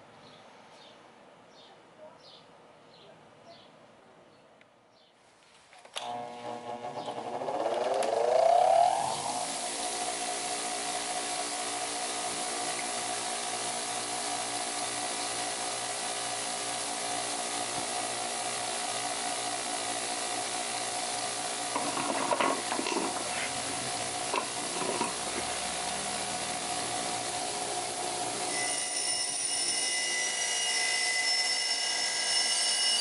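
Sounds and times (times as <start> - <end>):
bench grinder running: 6.0 - 33.0
clattering knocks: 21.8 - 23.5, 24.3 - 25.5.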